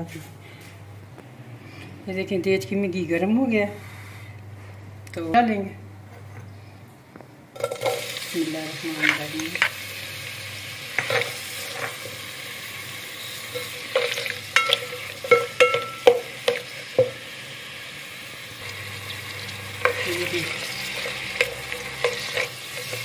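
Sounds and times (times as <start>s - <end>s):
onions sizzling in hot fat: 7.6s - 23.0s
spatula scraping metal pot: 19.4s - 23.0s.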